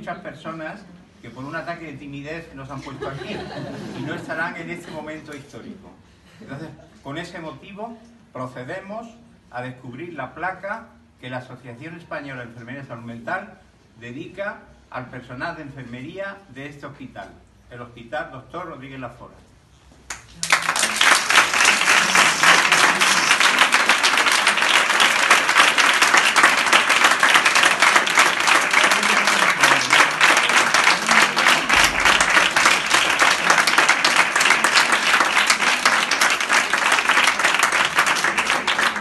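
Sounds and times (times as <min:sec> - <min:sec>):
people applauding: 0:20.1 - 0:39.0.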